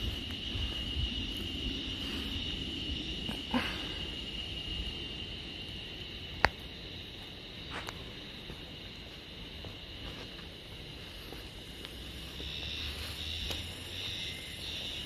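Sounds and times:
insects buzzing: 0:00.0 - 0:15.0.

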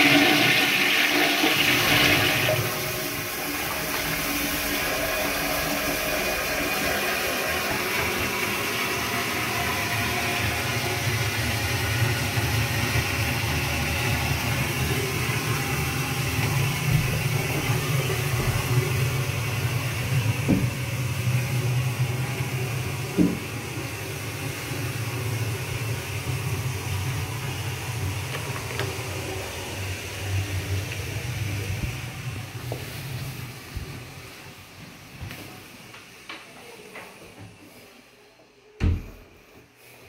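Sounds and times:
cistern water refilling hiss: 0:00.0 - 0:38.3
pipe knocks: 0:20.4 - 0:20.8.

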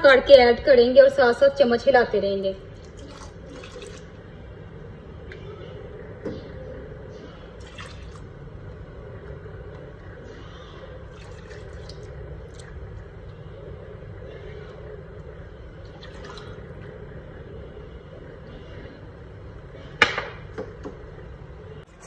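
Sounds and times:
liquid sloshing in a pan: 0:02.8 - 0:04.2.

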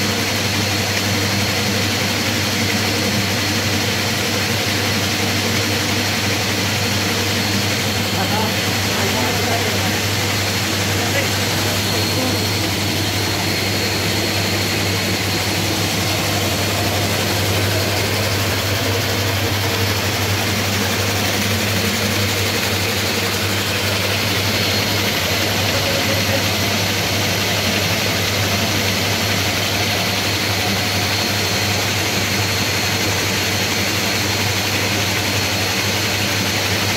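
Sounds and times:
motor humming: 0:00.2 - 0:33.4
water rushing: 0:07.7 - 0:21.4.

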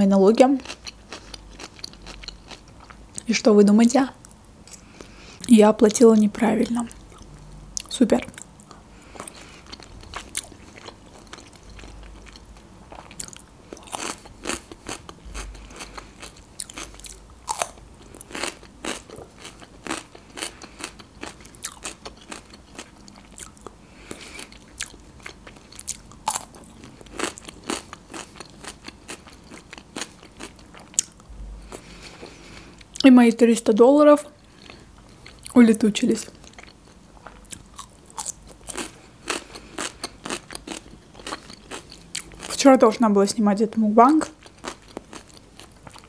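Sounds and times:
close chewing and biting: 0:00.6 - 0:03.2, 0:06.9 - 0:33.0, 0:36.3 - 0:42.6.

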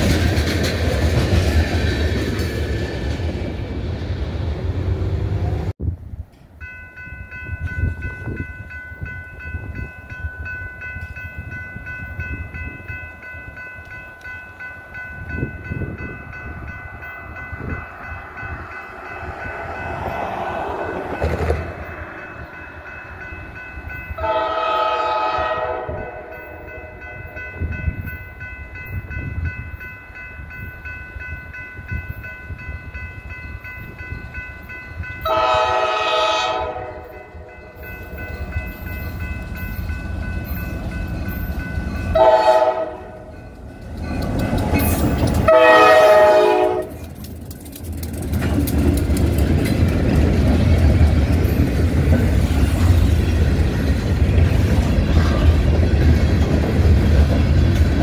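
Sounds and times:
freight train rumbling past: 0:00.0 - 0:58.0
locomotive air horn blasts: 0:24.2 - 0:27.0, 0:35.3 - 0:37.4, 0:42.1 - 0:43.3, 0:45.4 - 0:47.0.

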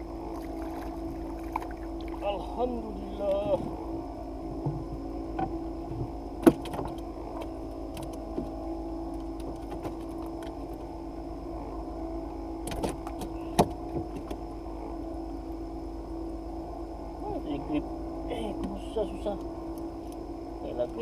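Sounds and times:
mechanical hum: 0:00.0 - 0:21.0
clicks and knocks on wooden boat: 0:04.6 - 0:08.6, 0:12.6 - 0:14.4.

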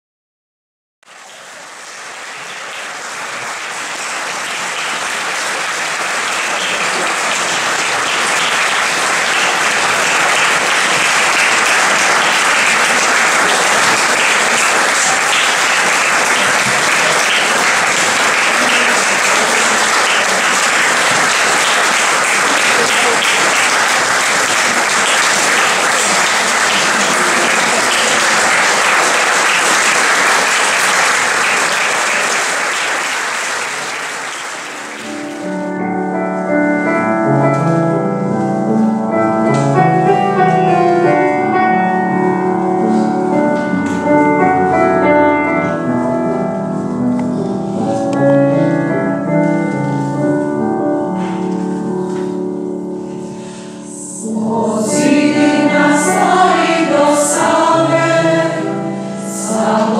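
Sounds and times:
audience applauding: 0:01.1 - 0:35.7, 0:54.3 - 0:58.6.

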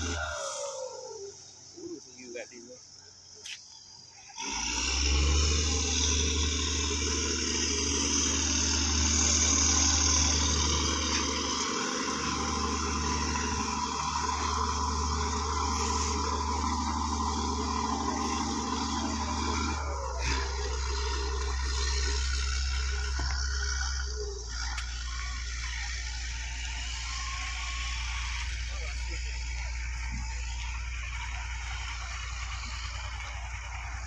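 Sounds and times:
boat engine rumbling: 0:00.0 - 0:04.0, 0:05.1 - 0:34.0
rushing hiss: 0:15.6 - 0:16.4.

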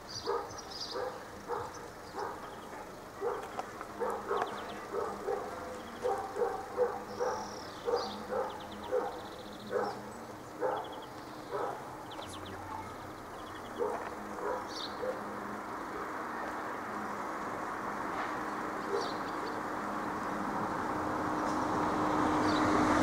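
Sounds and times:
dog barking: 0:00.2 - 0:12.1, 0:13.7 - 0:15.4, 0:18.8 - 0:19.3.

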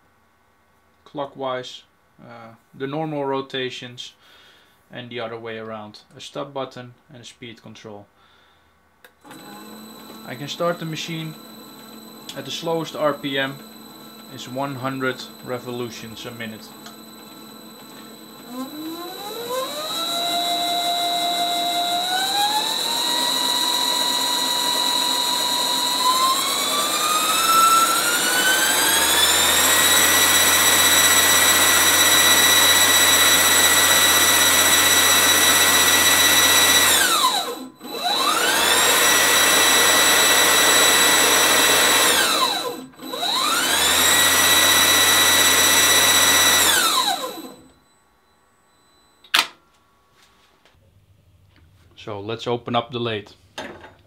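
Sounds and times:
lathe motor whine: 0:09.2 - 0:49.1.

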